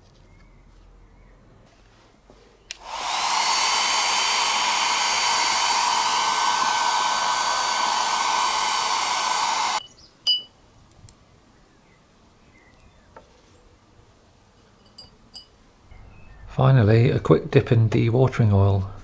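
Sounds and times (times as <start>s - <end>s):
hair dryer blowing: 2.7s - 9.8s
metal clink: 10.3s - 10.5s, 14.6s - 15.6s.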